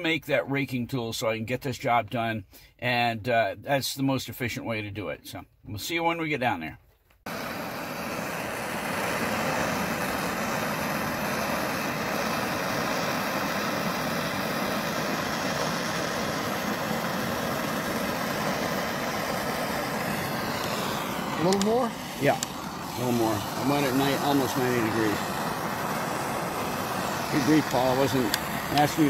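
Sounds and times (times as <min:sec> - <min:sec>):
gas torch rushing: 0:07.3 - 0:29.0.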